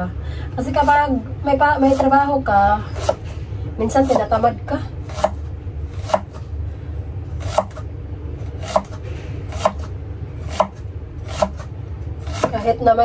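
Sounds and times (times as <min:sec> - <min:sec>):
knife chopping on cutting board: 0:03.0 - 0:03.3, 0:05.1 - 0:06.4, 0:07.4 - 0:07.8, 0:08.6 - 0:12.6.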